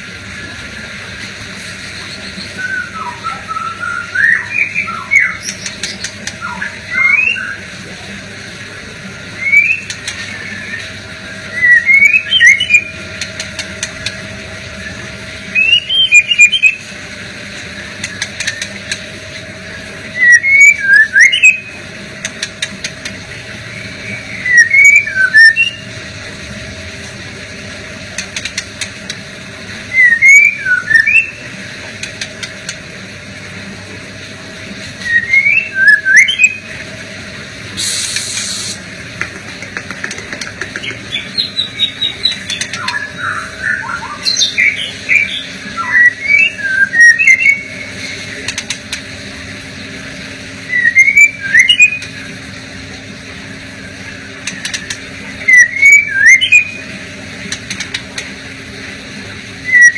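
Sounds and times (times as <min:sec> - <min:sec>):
bird singing whistled phrases: 0:02.2 - 0:07.6, 0:09.4 - 0:13.0, 0:14.8 - 0:16.9, 0:20.1 - 0:21.7, 0:23.7 - 0:25.9, 0:29.9 - 0:31.4, 0:35.0 - 0:36.7, 0:41.1 - 0:47.9, 0:50.6 - 0:52.2, 0:54.4 - 0:56.9, 0:59.6 - 0:59.9.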